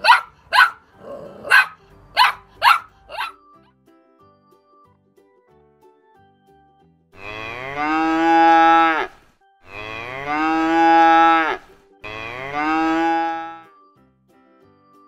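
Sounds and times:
cow mooing: 0:07.2 - 0:13.6.

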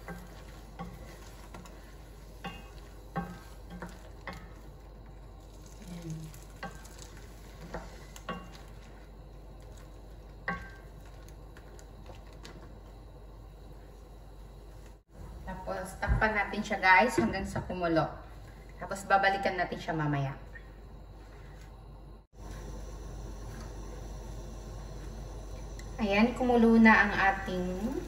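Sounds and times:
wooden spoon knocking pan: 0:00.0 - 0:04.6
low steady sizzle: 0:00.0 - 0:28.0.

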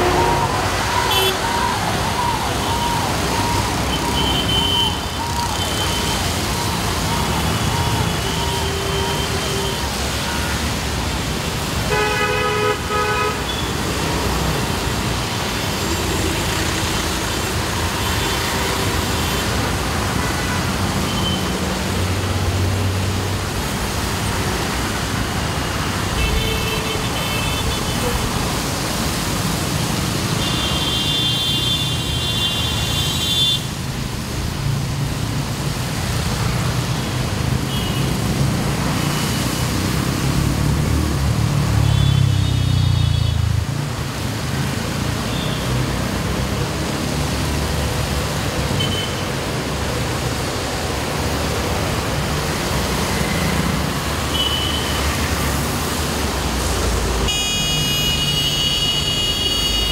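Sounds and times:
vehicle horn: 0:00.0 - 0:01.4, 0:11.9 - 0:13.8, 0:57.3 - 0:59.9
traffic on wet road: 0:00.0 - 0:59.9.

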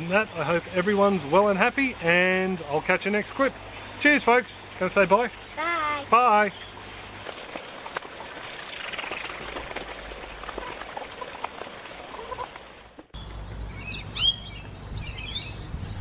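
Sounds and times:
birds chirping: 0:00.0 - 0:16.0
outdoor background noise: 0:00.0 - 0:16.0
hens pecking in plastic tray: 0:07.2 - 0:13.1.

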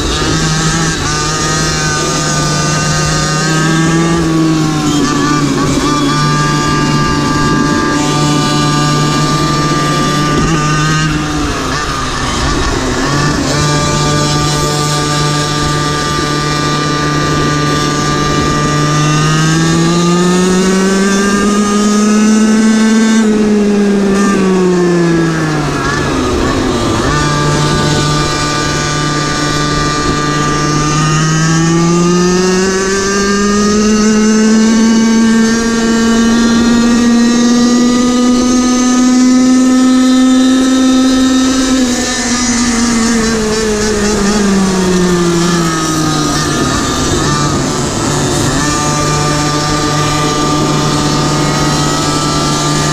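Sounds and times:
small engine revving: 0:00.0 - 0:52.9.

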